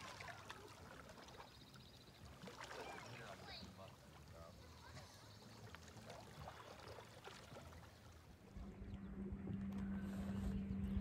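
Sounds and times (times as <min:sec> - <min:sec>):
kayak paddling water: 0:00.0 - 0:11.0
low rumble with hum: 0:08.4 - 0:11.0.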